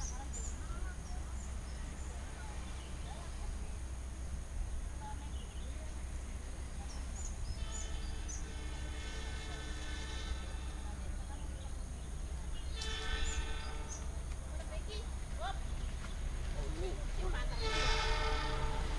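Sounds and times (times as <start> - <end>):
low background rumble: 0.0 - 18.9
train horn blasts: 7.4 - 14.5, 17.4 - 18.9.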